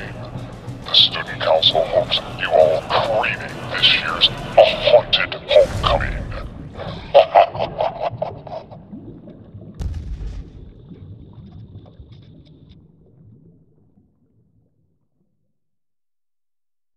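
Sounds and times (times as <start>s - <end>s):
deep boom rumbling: 5.5s - 7.2s, 9.8s - 12.3s
faint crackle: 5.6s - 15.5s.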